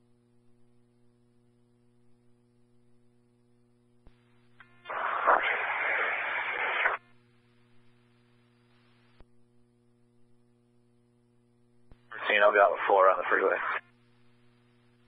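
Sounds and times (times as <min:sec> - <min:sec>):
steady electrical hum: 0:00.0 - 0:15.0
faint radio hiss: 0:04.1 - 0:09.2, 0:11.9 - 0:15.0
radio static burst: 0:04.6 - 0:07.0, 0:12.1 - 0:13.9.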